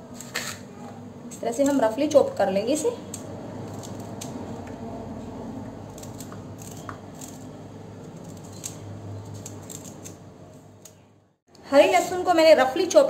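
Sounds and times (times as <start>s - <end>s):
knife snipping garlic stalks: 3.0s - 4.4s.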